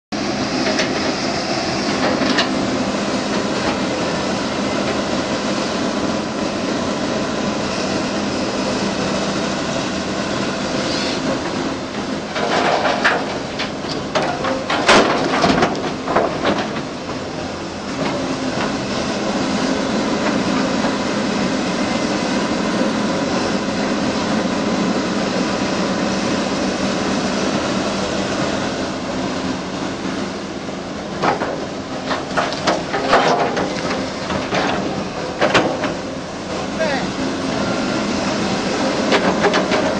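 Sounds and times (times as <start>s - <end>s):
excavator diesel engine running: 0.1s - 39.9s
sharp knocks and clanks: 12.0s - 17.2s, 31.2s - 36.0s, 39.0s - 39.9s.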